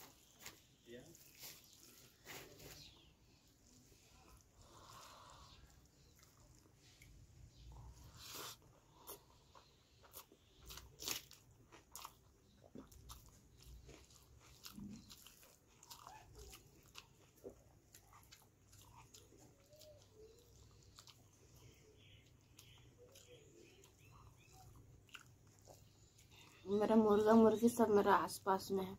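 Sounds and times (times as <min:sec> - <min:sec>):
wet chewing clicks and smacks: 0:04.2 - 0:08.0, 0:08.6 - 0:27.3.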